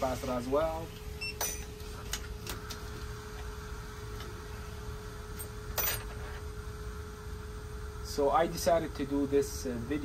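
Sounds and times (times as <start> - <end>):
steady workbench hum: 0.0 - 10.0.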